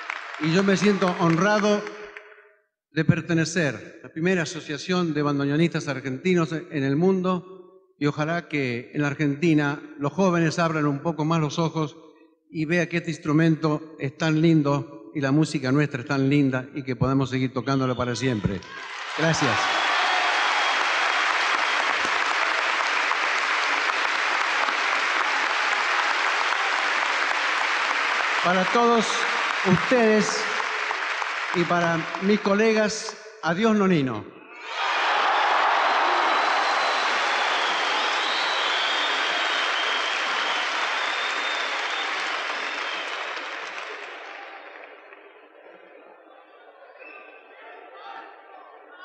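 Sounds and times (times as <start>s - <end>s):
audience applause: 0.0s - 2.0s, 18.6s - 32.6s, 34.6s - 45.9s.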